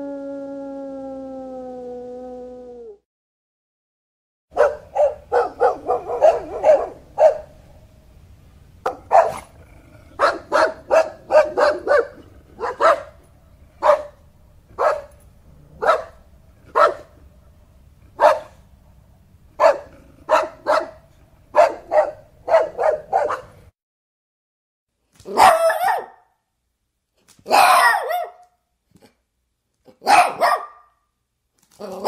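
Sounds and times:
dog barking: 4.5s - 7.6s, 8.8s - 9.5s, 10.2s - 13.2s, 13.8s - 14.2s, 14.8s - 15.2s, 15.8s - 17.1s, 18.2s - 18.6s, 19.6s - 23.6s, 25.3s - 26.3s, 27.5s - 28.5s, 30.0s - 31.0s.

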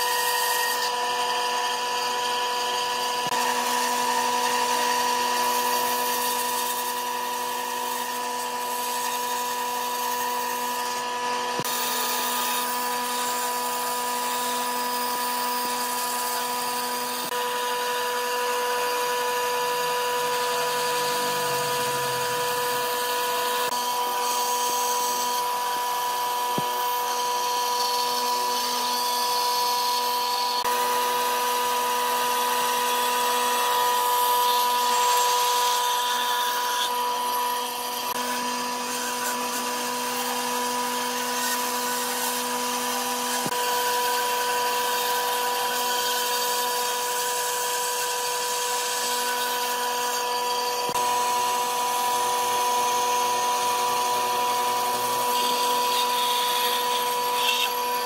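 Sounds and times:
band saw humming: 0.0s - 30.8s, 47.9s - 58.0s
saw blade hissing through wood: 18.0s - 29.4s.

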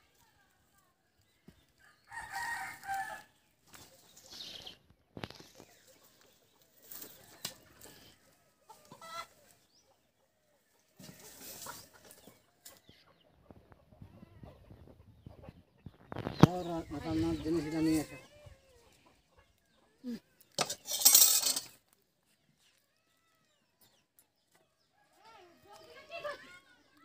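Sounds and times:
chickens clucking: 3.6s - 22.0s.

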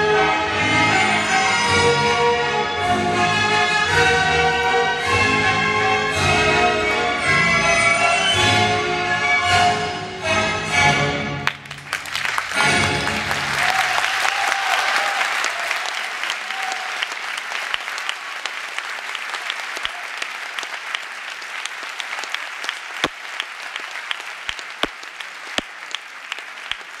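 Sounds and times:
audience applauding: 11.4s - 27.0s
single close claps: 22.6s - 23.5s, 24.1s - 26.8s.

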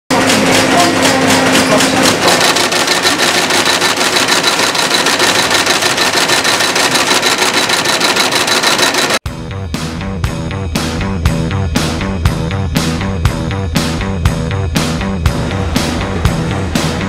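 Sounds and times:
steady machine hum: 0.1s - 9.2s
stitching machine needle clatter: 0.2s - 9.2s.

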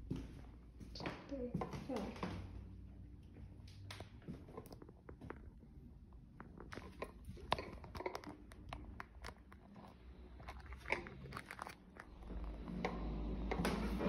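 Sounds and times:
footsteps on hardwood floor: 0.0s - 2.6s.

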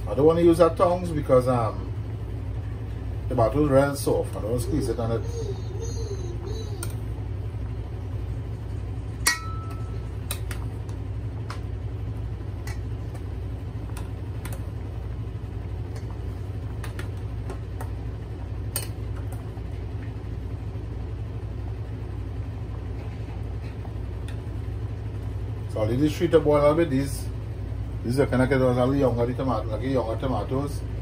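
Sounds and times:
low rumble from gas stove: 0.0s - 31.0s.

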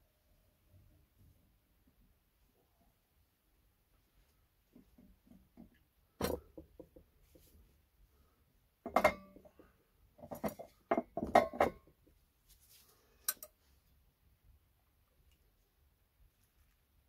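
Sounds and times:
kitchenware clinking and knocking: 8.8s - 9.5s, 10.2s - 12.0s.

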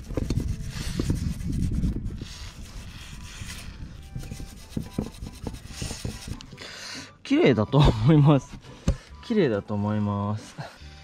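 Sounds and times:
cotton swab scraping metal: 0.0s - 6.6s.

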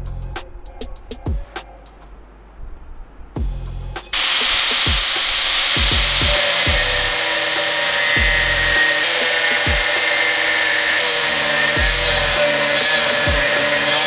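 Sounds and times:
background music with beat: 0.0s - 2.2s, 3.4s - 14.0s
angle grinder cutting steel: 4.0s - 14.0s.

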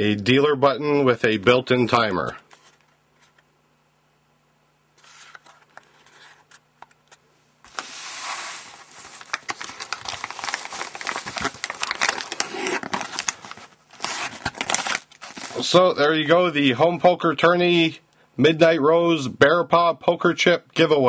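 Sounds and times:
crinkling and rustling: 2.2s - 3.5s, 5.0s - 15.9s.

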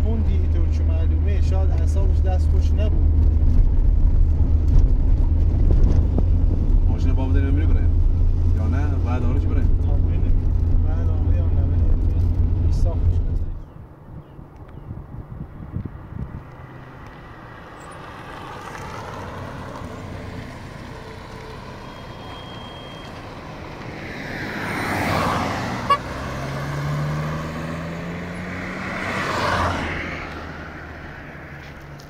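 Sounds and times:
vehicles passing by: 0.0s - 32.0s
engine note rising: 19.0s - 31.2s.

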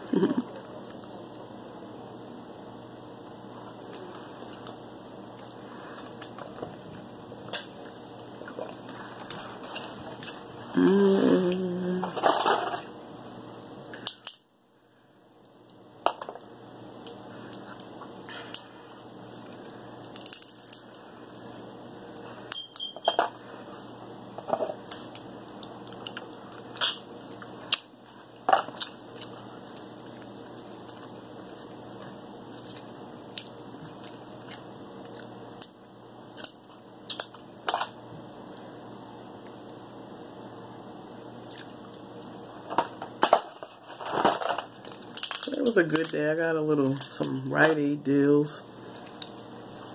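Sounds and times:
steady low hum: 0.0s - 49.9s
crab shells cracking: 20.0s - 21.0s, 44.2s - 46.2s.

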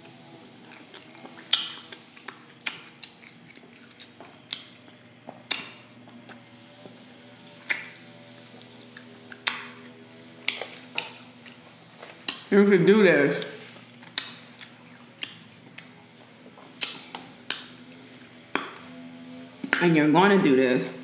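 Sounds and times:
chewing clicks: 0.7s - 6.4s, 13.4s - 16.0s, 16.8s - 17.7s
wet mouth smacks: 1.3s - 3.4s, 7.6s - 8.0s, 9.3s - 11.3s, 12.2s - 12.5s, 13.4s - 16.0s, 16.8s - 17.7s.

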